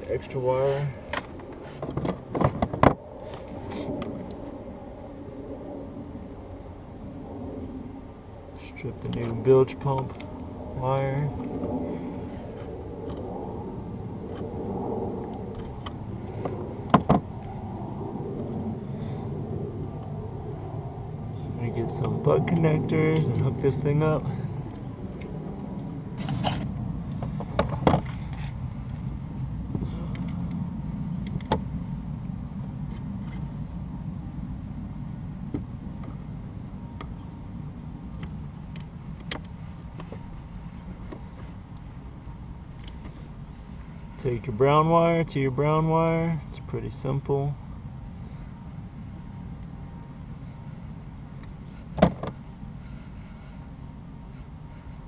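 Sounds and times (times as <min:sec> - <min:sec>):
low rumble: 0:00.0 - 0:44.5
small clicks of wire connectors: 0:42.8 - 0:43.1.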